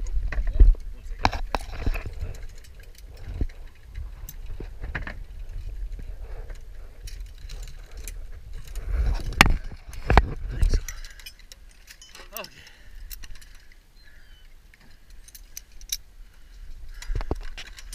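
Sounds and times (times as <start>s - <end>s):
steady low rumble: 0.0s - 11.9s
metal carabiners clinking: 0.5s - 17.9s.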